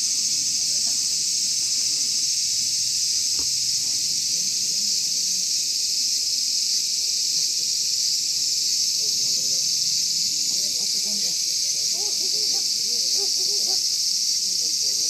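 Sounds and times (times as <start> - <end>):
insects buzzing: 0.0 - 15.0.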